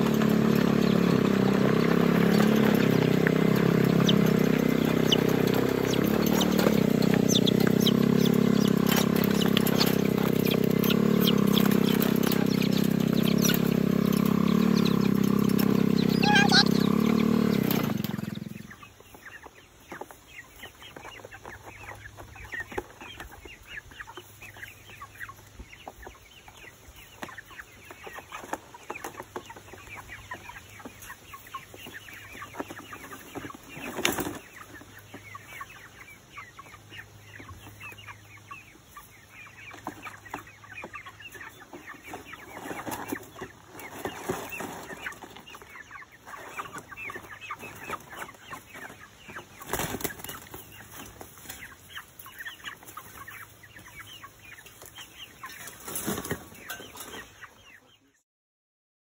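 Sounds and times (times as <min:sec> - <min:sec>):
chickens clucking and chirping: 0:00.0 - 0:58.2.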